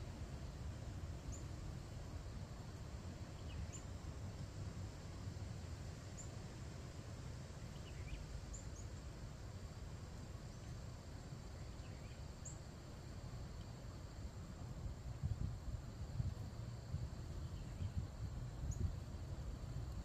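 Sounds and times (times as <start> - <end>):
faint insect drone: 0.0 - 20.0
faint bird chirps: 7.7 - 9.0, 11.6 - 12.6.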